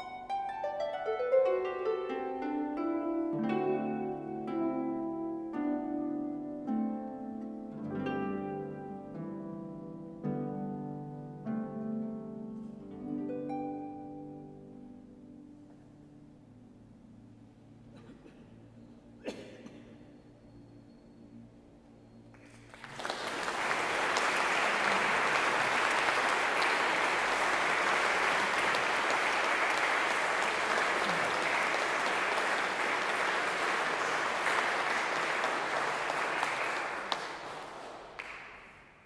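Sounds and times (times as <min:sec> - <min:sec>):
music: 0:00.0 - 0:36.5
audience applauding: 0:22.3 - 0:39.0.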